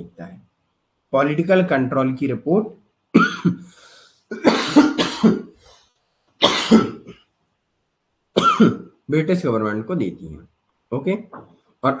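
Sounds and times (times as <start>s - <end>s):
man coughing: 3.2s - 3.7s, 4.3s - 5.6s, 6.4s - 7.2s, 8.4s - 8.9s.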